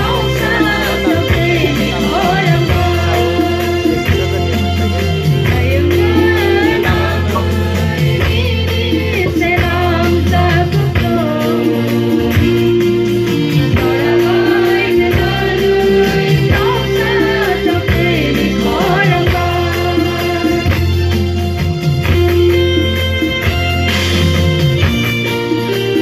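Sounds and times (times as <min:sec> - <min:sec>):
choir singing a hymn: 0:00.0 - 0:20.8
held bass notes: 0:00.0 - 0:26.0.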